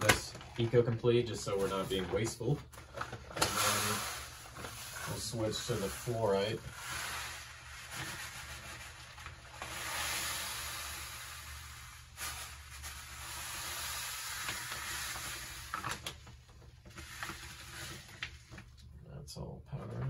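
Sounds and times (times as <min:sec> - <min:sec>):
gravel pouring into water: 0:03.4 - 0:16.0.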